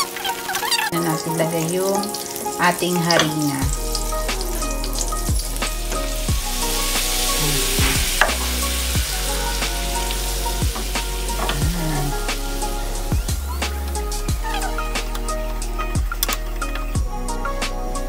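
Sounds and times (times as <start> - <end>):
butter sizzling in a pan: 0.0 - 17.0.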